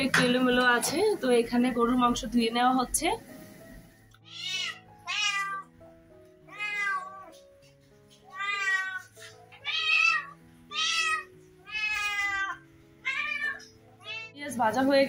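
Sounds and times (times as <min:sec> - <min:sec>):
soft background music: 0:00.0 - 0:15.0
cat meowing: 0:04.2 - 0:05.8, 0:06.4 - 0:07.4, 0:08.2 - 0:14.4.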